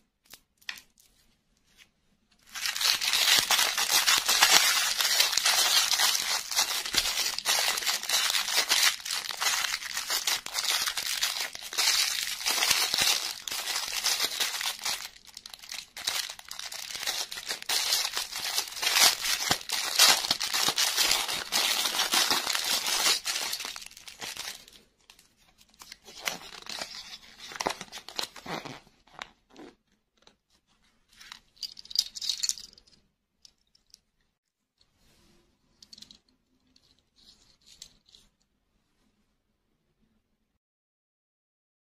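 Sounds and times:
cellophane bag crinkling and tearing: 2.4s - 25.2s, 25.8s - 28.8s.

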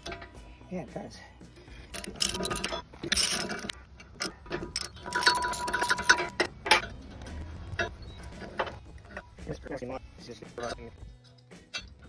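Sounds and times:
ratchet wrench clicking: 1.9s - 6.4s
metal clinks: 1.9s - 6.9s.

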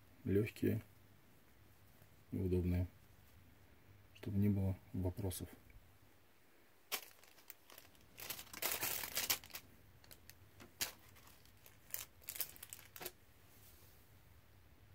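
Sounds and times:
plastic bags crinkling: 6.9s - 13.2s.

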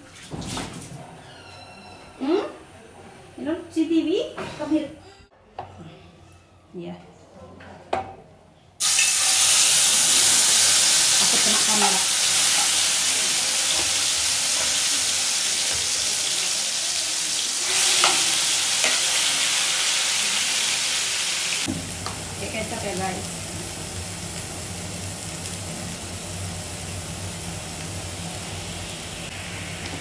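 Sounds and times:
oil sizzling in frying pan: 8.8s - 30.0s.

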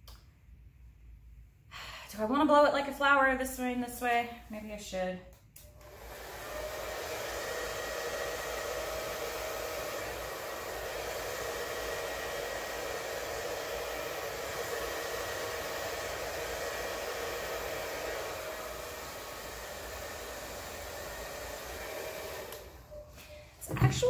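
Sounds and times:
electric air blower running: 5.8s - 24.0s.

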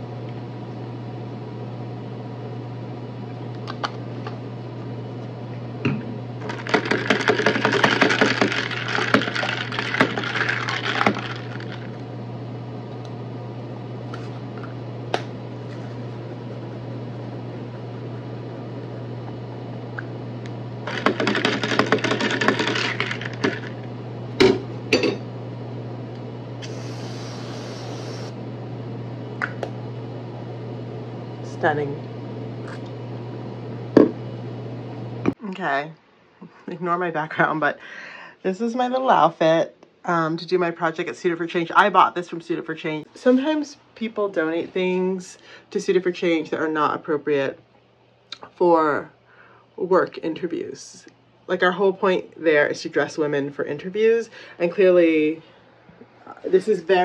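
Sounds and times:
steady low hum: 0.0s - 57.0s
ice rattling in a cup: 6.4s - 12.0s, 20.9s - 23.8s
aerosol can spraying hiss: 26.6s - 28.4s.

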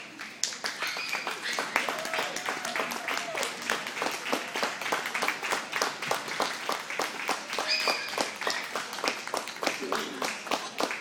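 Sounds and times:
audience clapping: 0.0s - 11.0s.

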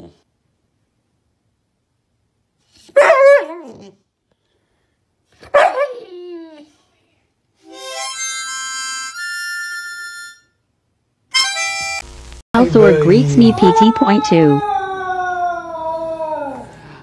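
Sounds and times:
puppy yowling: 3.0s - 4.0s, 5.5s - 6.7s, 13.3s - 16.8s.

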